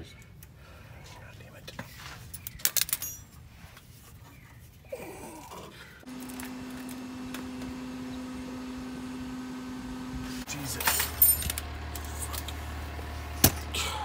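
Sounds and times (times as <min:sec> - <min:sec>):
metal tools clinking: 0:02.2 - 0:03.5, 0:10.6 - 0:12.6.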